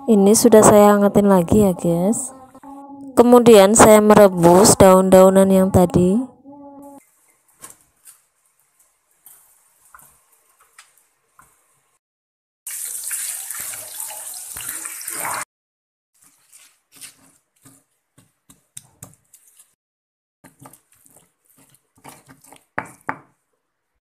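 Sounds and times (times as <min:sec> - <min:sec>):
pestle grinding in stone mortar: 0:20.4 - 0:23.4.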